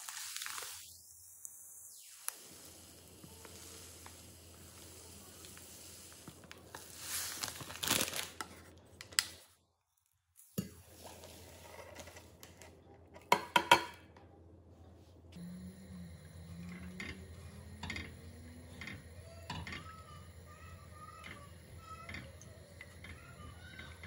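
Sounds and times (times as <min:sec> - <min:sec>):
plastic bag crinkling: 0:00.0 - 0:00.8, 0:03.3 - 0:09.2
sugar pouring: 0:00.0 - 0:08.4.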